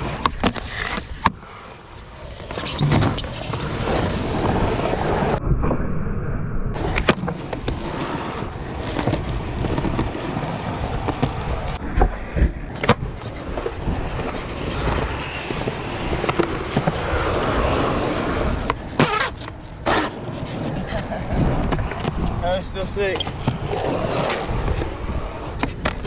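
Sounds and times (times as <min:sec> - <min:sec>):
skateboard wheels rolling on concrete: 0:00.0 - 0:05.4, 0:06.7 - 0:26.0
skateboard hitting the ground: 0:02.6 - 0:03.8, 0:06.8 - 0:07.8.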